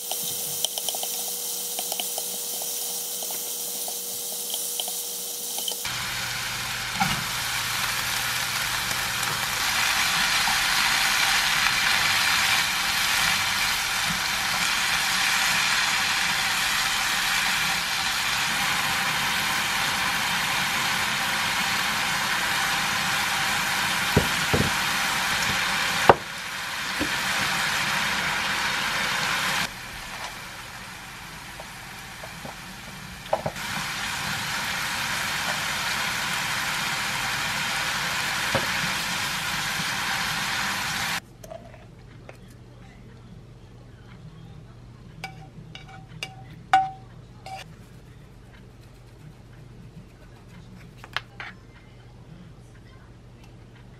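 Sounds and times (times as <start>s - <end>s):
food sizzling in a frying pan: 0.0s - 41.2s.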